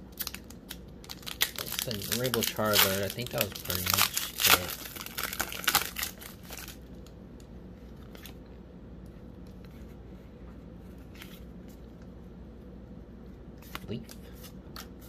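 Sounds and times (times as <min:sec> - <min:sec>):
foil wrapper crinkling: 0:00.2 - 0:06.8.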